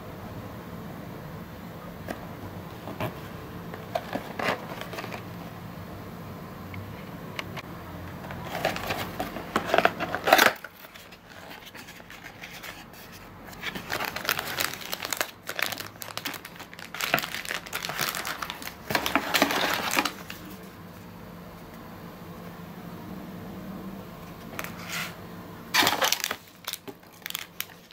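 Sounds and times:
plastic packaging crinkling: 0:02.9 - 0:05.4, 0:08.3 - 0:20.7, 0:25.7 - 0:27.9.

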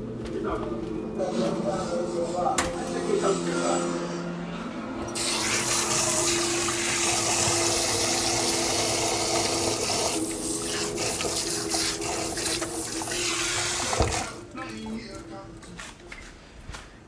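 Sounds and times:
water running: 0:05.2 - 0:14.7.

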